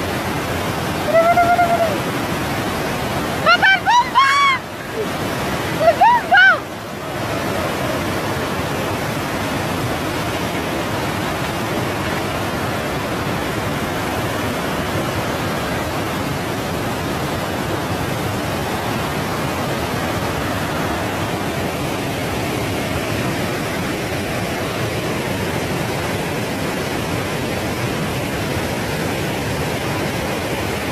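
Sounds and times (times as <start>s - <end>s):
flood water rushing: 0.0s - 30.9s.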